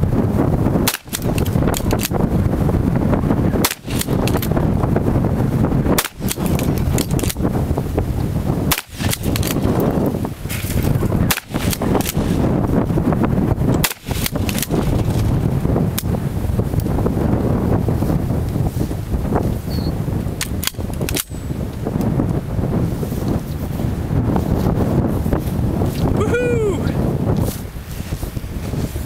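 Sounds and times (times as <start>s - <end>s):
wind rumbling on microphone: 0.0s - 29.0s
shotgun blasts: 0.8s - 1.5s, 3.6s - 4.4s, 6.0s - 6.6s, 8.7s - 9.7s, 11.2s - 12.4s, 13.8s - 14.8s.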